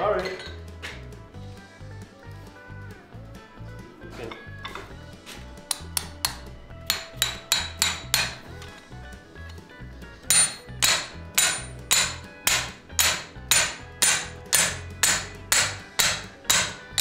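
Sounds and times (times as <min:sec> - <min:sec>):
hammer striking steel on anvil: 0:05.7 - 0:08.5, 0:10.2 - 0:17.0.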